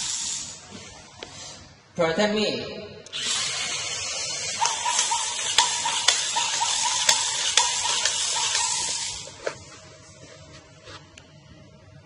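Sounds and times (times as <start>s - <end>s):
toy hissing electronic sound: 0.0s - 0.6s, 3.1s - 9.4s
sharp ticks: 4.6s - 9.0s.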